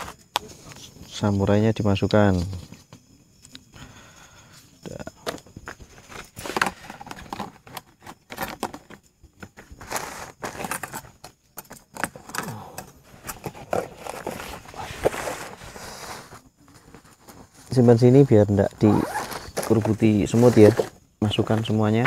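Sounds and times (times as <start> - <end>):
plastic containers clattering: 4.8 - 15.6, 19.0 - 22.0.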